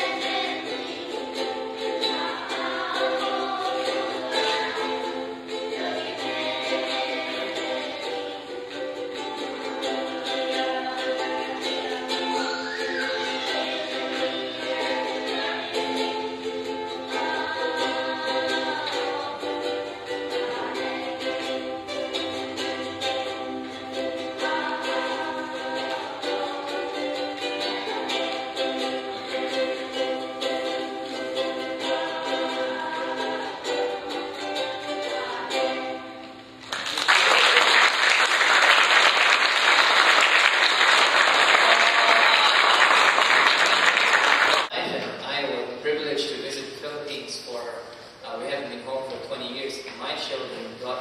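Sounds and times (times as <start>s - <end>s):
children singing: 0.0s - 36.3s
strummed ukuleles: 0.0s - 51.0s
audience applause: 36.6s - 44.7s.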